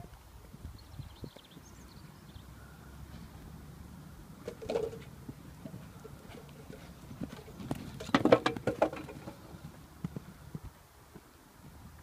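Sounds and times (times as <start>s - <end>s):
horse hoofbeats on sand: 4.8s - 12.0s.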